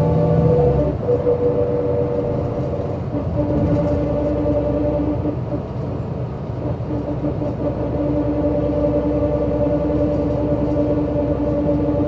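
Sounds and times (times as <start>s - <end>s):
bus engine rumbling: 0.0s - 12.0s.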